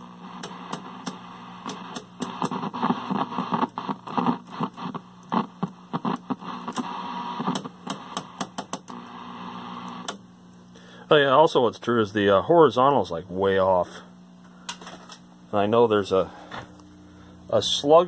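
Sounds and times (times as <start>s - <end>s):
mains hum: 0.0s - 18.0s
television static hiss: 0.0s - 18.0s.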